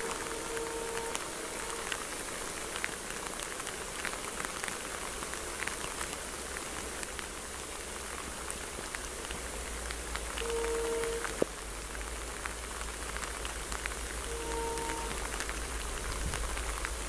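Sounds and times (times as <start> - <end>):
rain on vegetation and gravel: 0.0 - 17.0.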